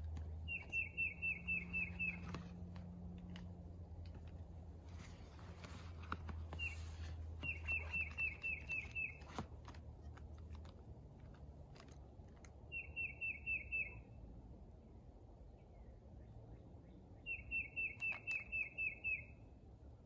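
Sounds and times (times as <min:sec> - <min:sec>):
low steady rumble: 0:00.0 - 0:13.0
bird singing downward notes: 0:00.1 - 0:02.9, 0:05.6 - 0:09.5, 0:12.7 - 0:14.1, 0:16.2 - 0:19.4.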